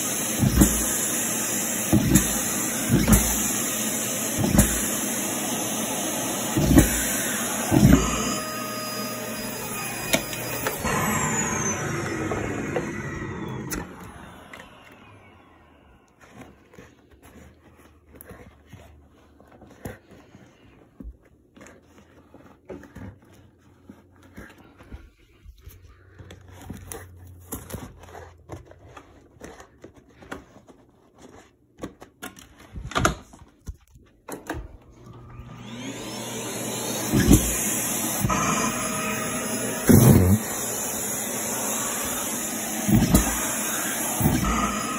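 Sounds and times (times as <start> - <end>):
vacuum cleaner running: 0.0 - 16.9, 34.3 - 44.9.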